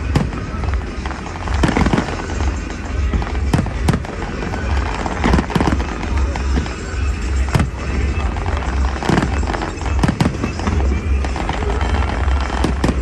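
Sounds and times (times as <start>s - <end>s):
fireworks bangs: 0.0s - 13.0s
soft fireworks thumps: 0.0s - 13.0s
steady low rumble: 0.0s - 13.0s.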